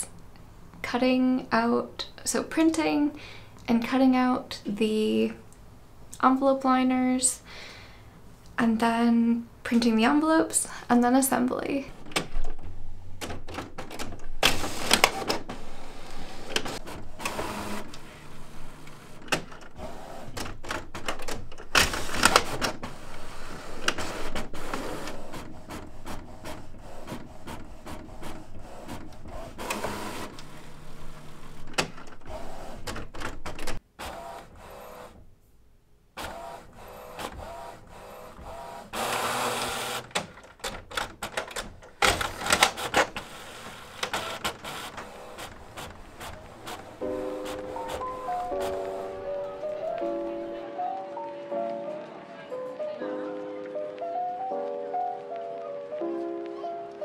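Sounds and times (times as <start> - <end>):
inkjet printer whirring and clicking: 14.4 - 35.2, 36.2 - 40.8, 41.5 - 49.1.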